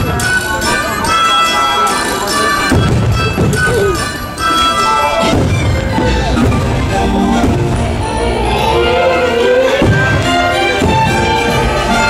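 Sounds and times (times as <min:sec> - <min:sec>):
orchestral music: 0:00.0 - 0:12.0
fireworks booming: 0:02.6 - 0:08.5, 0:09.6 - 0:12.0.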